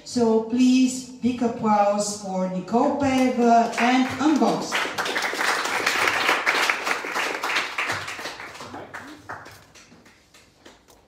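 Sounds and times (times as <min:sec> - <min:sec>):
audience applauding: 0:04.0 - 0:10.5.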